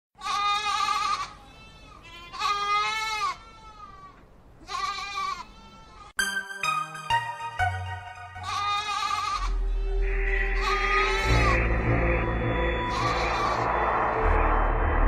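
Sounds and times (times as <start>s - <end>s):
goat bleating: 0.2s - 6.1s, 8.4s - 11.6s
electronic music: 6.2s - 15.0s.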